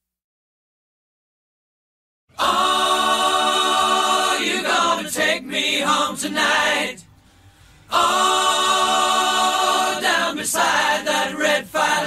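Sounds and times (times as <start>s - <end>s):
voices singing long held notes: 2.3s - 7.1s, 7.9s - 12.0s.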